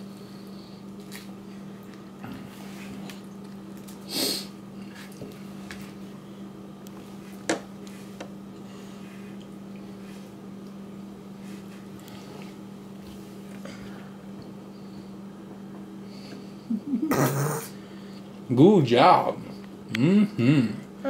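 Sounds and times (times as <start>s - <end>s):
steady low hum: 0.0s - 21.0s
breathy sniff: 4.1s - 4.5s.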